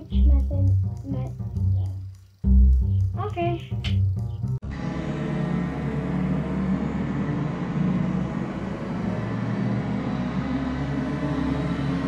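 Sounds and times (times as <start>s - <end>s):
low rumbling drone: 0.0s - 12.0s.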